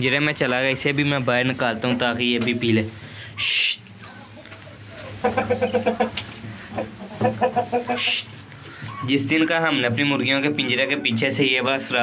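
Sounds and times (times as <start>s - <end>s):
chickens clucking: 5.0s - 9.2s.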